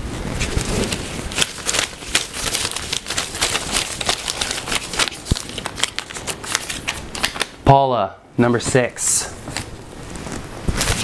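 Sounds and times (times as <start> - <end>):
paper slips rustling: 0.4 - 7.6.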